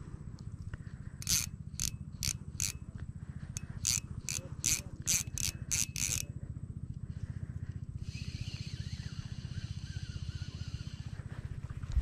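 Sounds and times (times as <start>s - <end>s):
low engine chug: 0.0s - 12.0s
fishing reel clicking: 1.2s - 2.9s, 3.5s - 6.3s, 8.0s - 11.1s.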